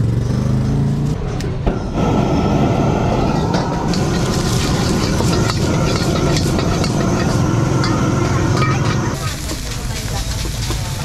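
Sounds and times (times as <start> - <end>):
gas burner rumbling: 1.2 - 11.0
metal ladle scraping and clanking: 3.5 - 11.0
egg and rice sizzling in wok: 3.8 - 11.0.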